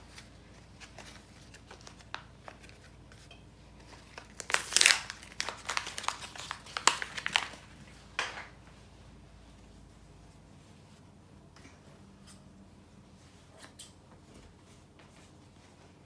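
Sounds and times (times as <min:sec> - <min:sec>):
tape crinkling and tearing: 0:03.9 - 0:08.4.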